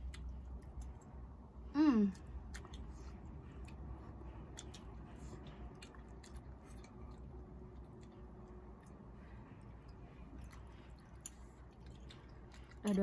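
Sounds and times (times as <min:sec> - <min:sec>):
low steady hum: 0:00.0 - 0:13.0
chewing noodles: 0:02.2 - 0:13.0.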